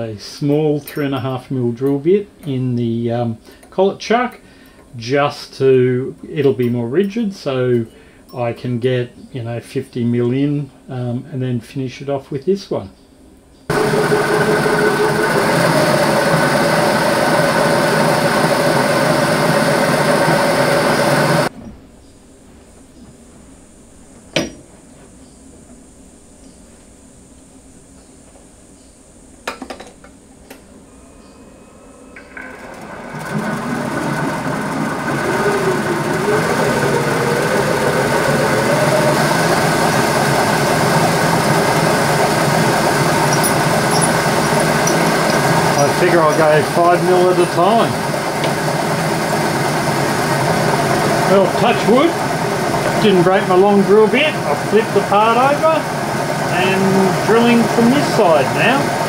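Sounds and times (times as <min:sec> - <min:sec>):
lathe drilling whine: 0:13.7 - 0:21.5, 0:30.8 - 0:59.0.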